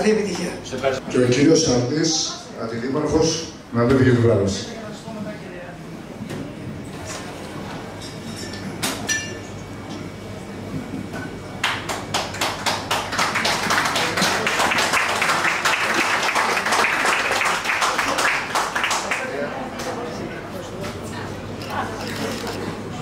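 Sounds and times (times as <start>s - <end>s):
murmur of room chatter: 0.0s - 23.0s
audience applauding: 11.6s - 19.7s.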